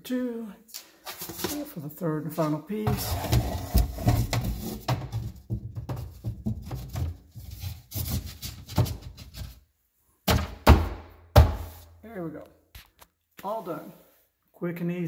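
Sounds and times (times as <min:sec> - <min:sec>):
wooden plank knocking and scraping: 0:02.9 - 0:09.5.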